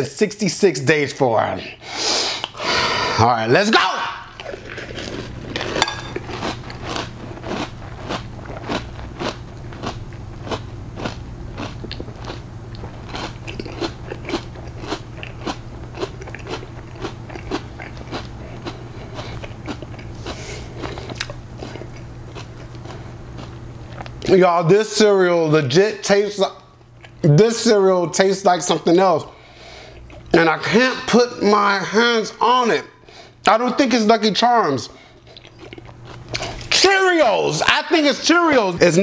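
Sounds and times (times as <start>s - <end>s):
person chewing crunchy cereal: 4.2s - 24.3s, 29.4s - 30.4s, 35.0s - 36.8s.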